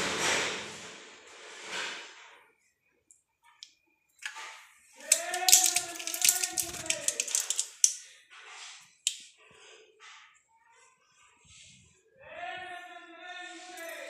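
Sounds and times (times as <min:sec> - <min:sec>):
foil blister pack crackling: 0:05.0 - 0:08.0.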